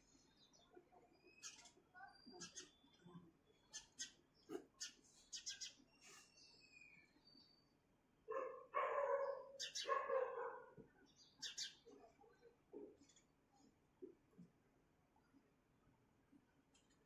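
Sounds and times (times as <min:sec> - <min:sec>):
sparrows chirping: 0:00.0 - 0:13.2.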